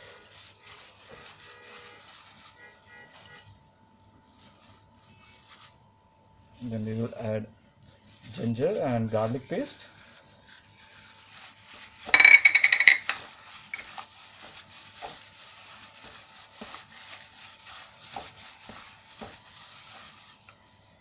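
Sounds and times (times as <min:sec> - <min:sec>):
plastic and wet meat rustling: 0:00.0 - 0:21.0
scraping clink: 0:12.1 - 0:13.2.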